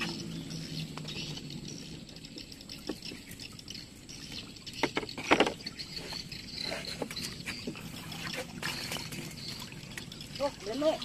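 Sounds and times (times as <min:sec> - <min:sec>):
water splashing and dripping: 0:00.0 - 0:11.0.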